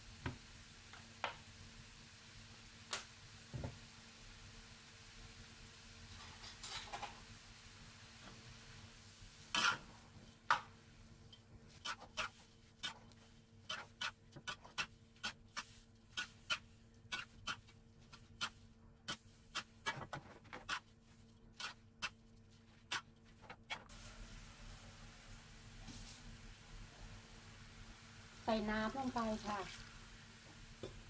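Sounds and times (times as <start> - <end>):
utensils scraping metal wok: 9.5 - 9.9, 11.7 - 20.9.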